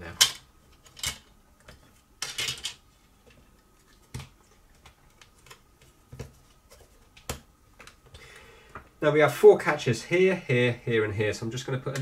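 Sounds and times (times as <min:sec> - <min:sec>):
plastic parts clicking and clattering: 0:00.2 - 0:02.8.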